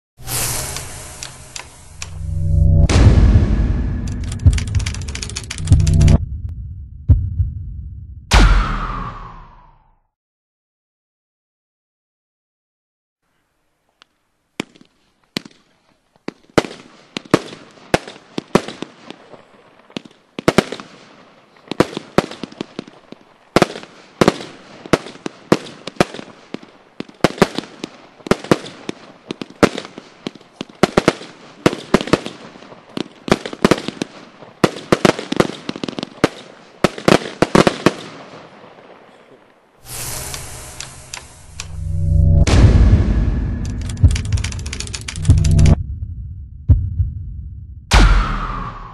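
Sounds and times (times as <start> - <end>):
firework crackling: 0.2 - 2.5, 3.2 - 6.2, 14.6 - 38.8, 39.8 - 42.6, 43.2 - 45.7
firework bangs: 16.2 - 39.2.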